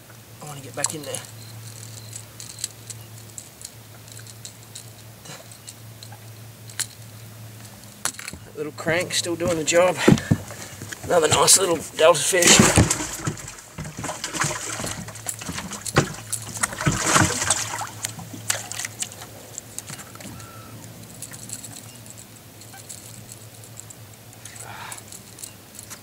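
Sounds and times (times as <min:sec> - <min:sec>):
steady low hum: 0:00.0 - 0:26.0
knocks and clatter of gear: 0:00.5 - 0:26.0
water splash: 0:11.1 - 0:19.2.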